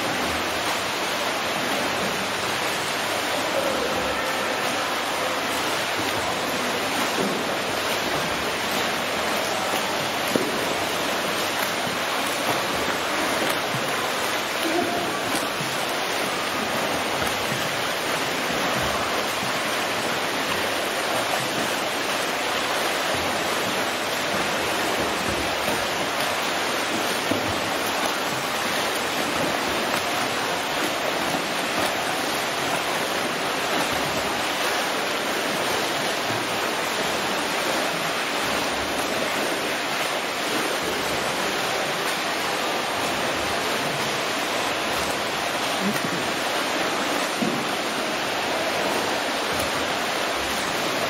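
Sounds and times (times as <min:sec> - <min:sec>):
swimmers splashing in pool water: 0:00.0 - 0:51.0.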